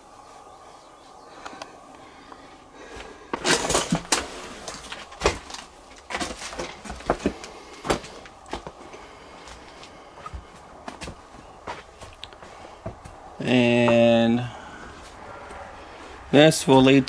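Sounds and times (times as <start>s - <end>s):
footsteps crunching over debris: 2.8s - 15.2s.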